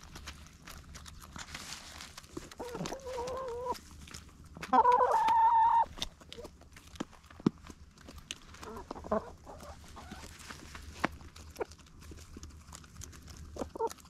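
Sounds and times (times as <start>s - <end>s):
hens pecking on a tray: 0.0s - 14.0s
hens clucking softly: 2.4s - 6.6s, 8.5s - 10.4s, 13.2s - 14.0s.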